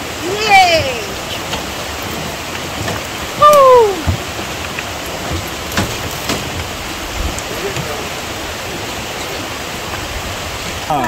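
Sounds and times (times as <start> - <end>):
rushing rocky stream: 0.0 - 11.0
person calling out: 3.4 - 4.1.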